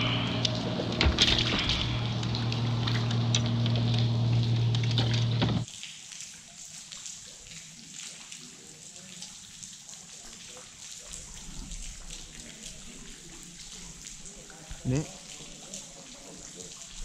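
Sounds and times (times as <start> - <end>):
loud low hum: 0.0 - 5.6
rain falling on water and boat: 0.0 - 17.0.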